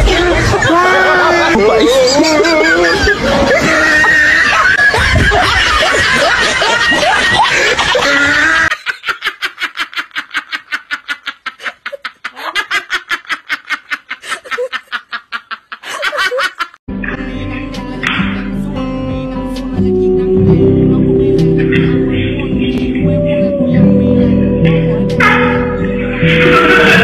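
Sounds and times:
group talking and laughing: 0.0 - 8.8, 15.8 - 27.0
woman laughing hard: 1.7 - 16.8
music: 16.9 - 27.0.

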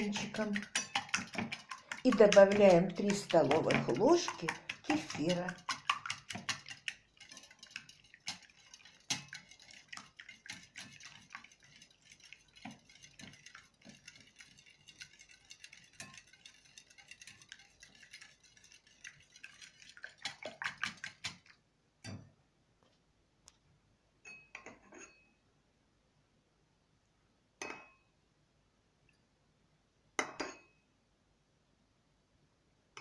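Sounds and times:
whisk clicking against bowl: 0.0 - 21.6.

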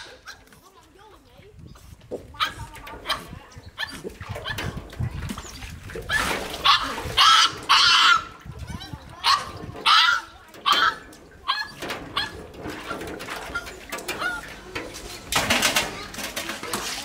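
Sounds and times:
water splashing into metal basin: 2.6 - 17.0
puppy whining: 5.4 - 14.5.

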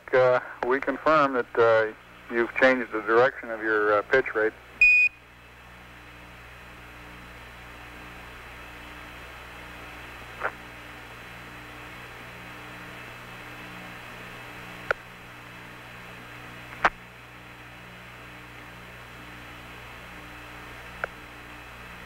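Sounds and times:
radio hum and hiss: 0.0 - 22.0
short radio clicks: 10.4 - 10.6, 16.7 - 17.0.

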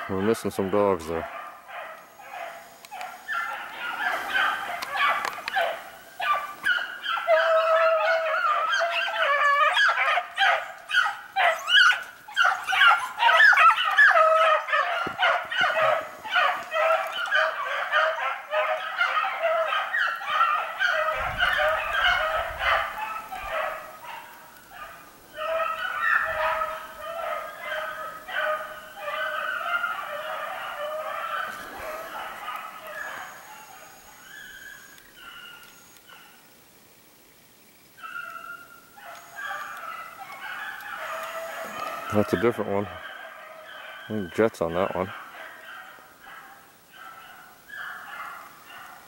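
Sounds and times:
hounds baying: 0.0 - 36.5, 37.9 - 49.0.

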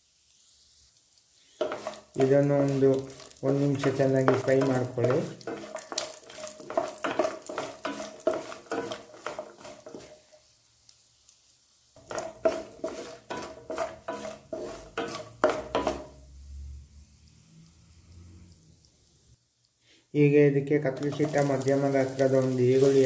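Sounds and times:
frying in oil: 0.0 - 23.0
spatula scraping nuts in a pan: 1.4 - 10.6, 12.0 - 16.2, 20.9 - 23.0.

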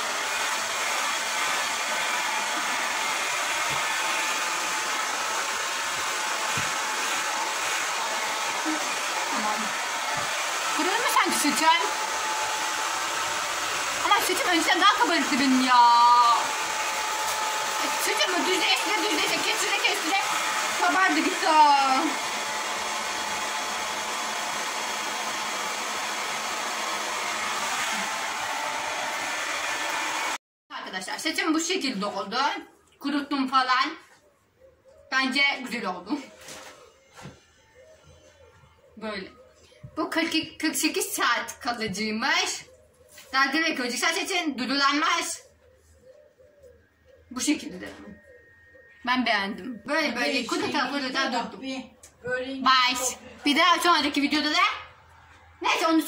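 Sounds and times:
hair dryer blowing air: 0.0 - 30.4.

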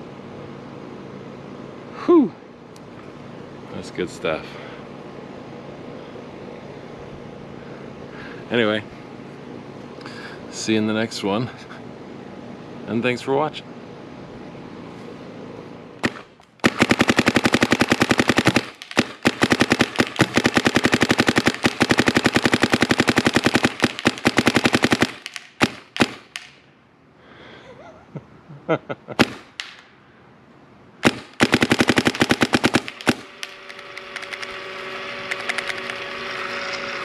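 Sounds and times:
paintball marker firing shots: 16.0 - 26.6, 29.2 - 29.8, 31.0 - 34.6.

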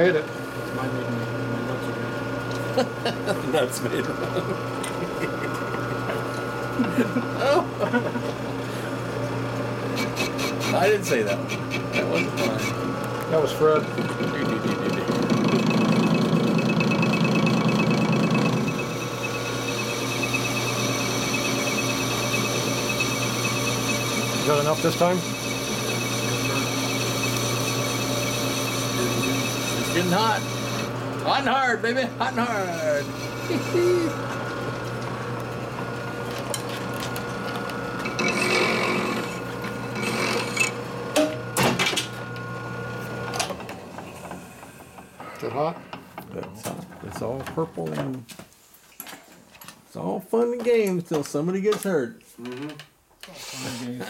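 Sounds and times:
lathe cutting steel: 9.9 - 12.9, 13.8 - 31.4, 32.2 - 34.4, 38.0 - 40.8
machine ticking: 14.8 - 30.8.

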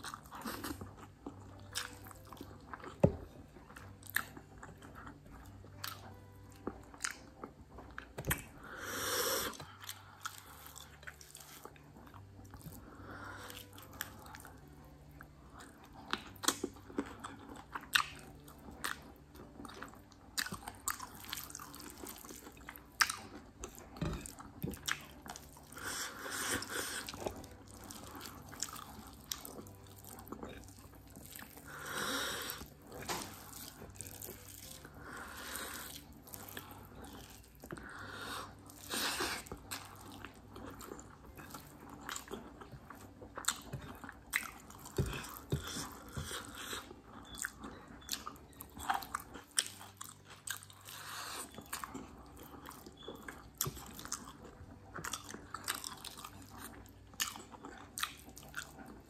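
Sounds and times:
chewing and wet mouth clicks: 15.6 - 25.7, 39.4 - 59.0.

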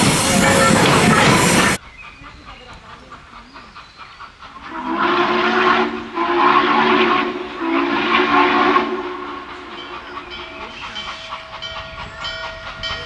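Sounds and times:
steam locomotive chime whistle: 0.0 - 1.8, 4.7 - 13.0.

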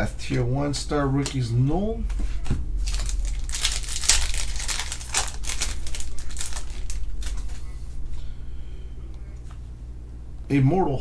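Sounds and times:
foil wrapper crinkling: 2.8 - 8.3.

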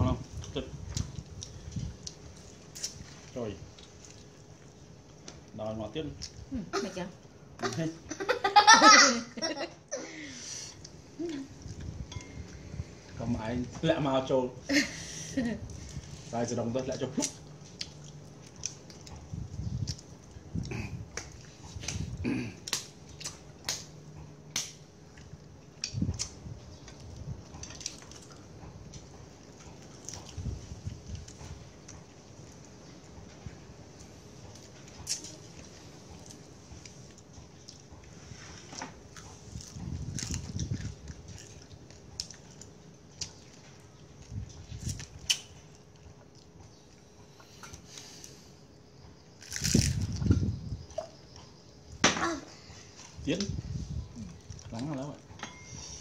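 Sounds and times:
eating clicks and crunches: 0.3 - 6.5, 16.8 - 33.2, 33.9 - 48.4, 49.2 - 52.0, 54.2 - 55.2.

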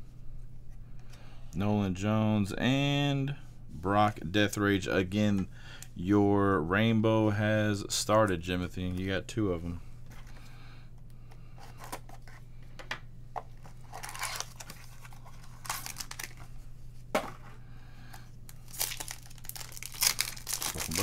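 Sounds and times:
steady low hum: 0.0 - 21.0
cards rustling and sliding: 13.5 - 16.6
foil wrappers crinkling and tearing: 13.6 - 16.6, 18.5 - 21.0.

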